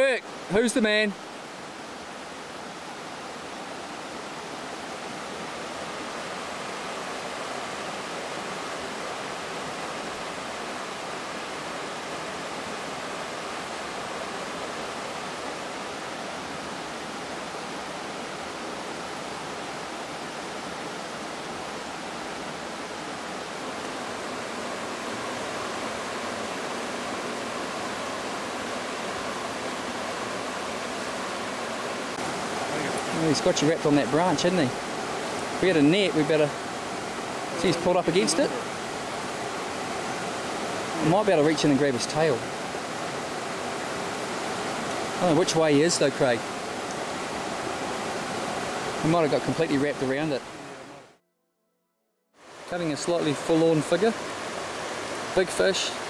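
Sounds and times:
river rushing over stones: 0.0s - 51.2s, 52.4s - 56.0s.

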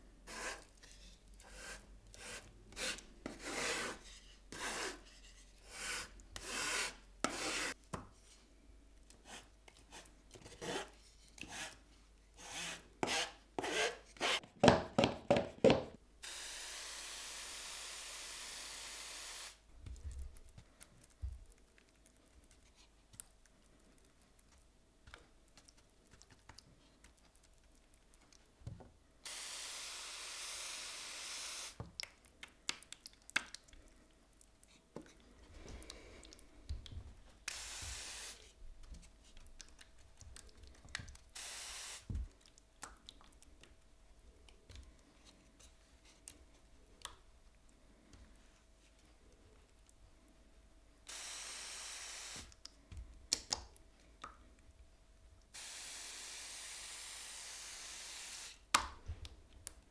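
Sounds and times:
spray hiss: 16.2s - 19.6s, 29.2s - 31.8s, 37.5s - 38.4s, 41.4s - 42.1s, 51.1s - 52.5s, 55.6s - 58.6s.

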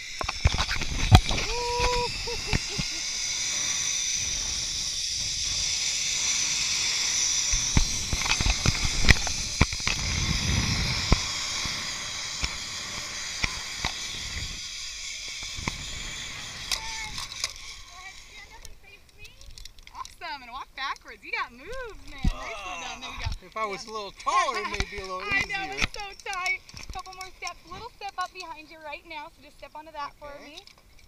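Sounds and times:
zip line pulleys hissing on cable: 0.0s - 31.0s
wind rumble on microphone: 0.2s - 2.8s, 7.4s - 14.7s
scattered clicks: 18.3s - 22.4s, 23.2s - 28.7s.

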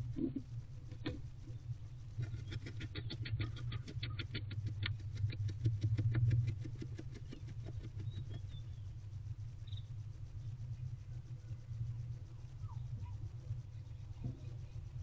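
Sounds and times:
owl scratching feathers: 0.0s - 8.9s
steady low hum: 0.0s - 15.0s.

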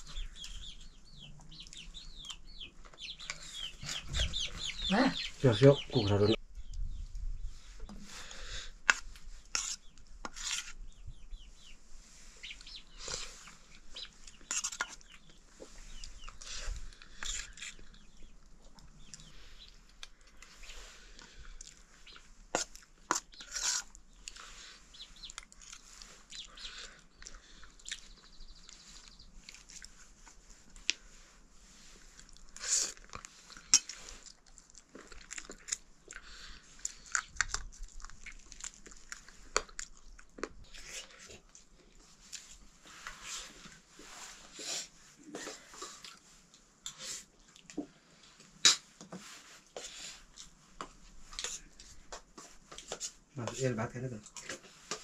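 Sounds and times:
chewing and smacking: 21.1s - 31.0s, 32.1s - 42.5s, 45.3s - 48.5s.

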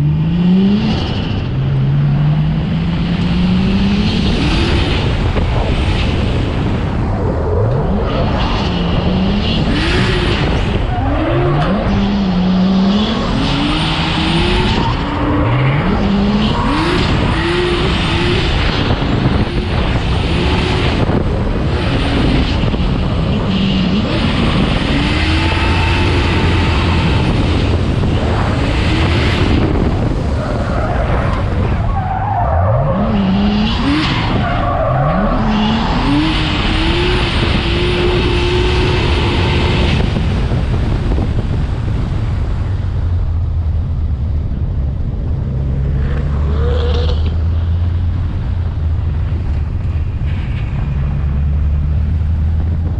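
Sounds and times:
car engine revving hard: 7.8s - 30.4s, 32.3s - 41.2s.

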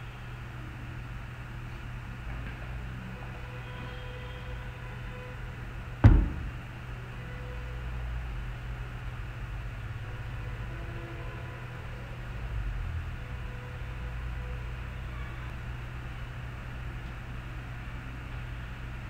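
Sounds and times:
low background hum and hiss: 0.0s - 19.0s
sharp knock: 6.0s - 6.6s.

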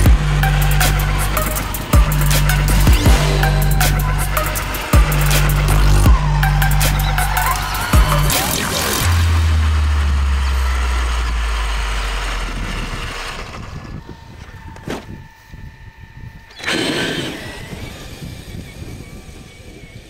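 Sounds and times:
deep low music tone: 0.0s - 14.8s
electric motor whine: 0.0s - 20.0s
motor and tyres through grass: 0.0s - 20.0s.

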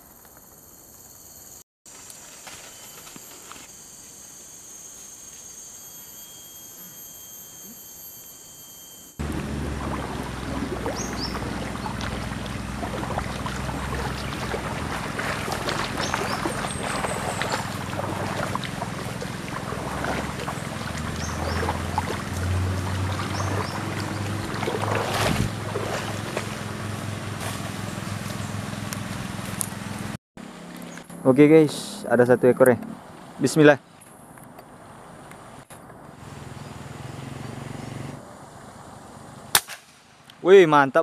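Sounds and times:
wind buffeting microphone: 9.2s - 26.8s
river water running over stones: 9.2s - 26.9s
footsteps through grass: 10.8s - 22.2s, 22.8s - 29.6s.

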